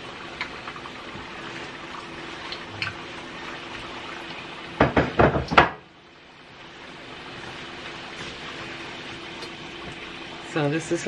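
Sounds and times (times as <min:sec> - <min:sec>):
deep-frying sizzle: 0:00.0 - 0:11.0
loud pops or knocks: 0:04.8 - 0:05.8.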